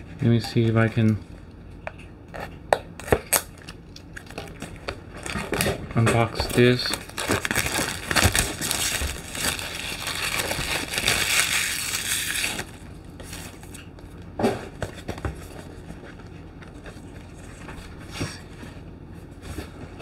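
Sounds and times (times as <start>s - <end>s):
plastic shrink-wrap crinkling: 4.3s - 13.8s.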